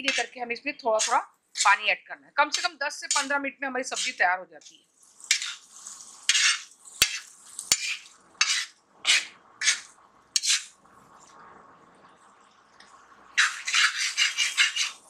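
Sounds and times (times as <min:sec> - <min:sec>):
metal spoon scraping an iron pan: 0:00.0 - 0:01.8, 0:02.5 - 0:04.2, 0:05.3 - 0:05.6, 0:06.3 - 0:10.7, 0:13.4 - 0:15.0.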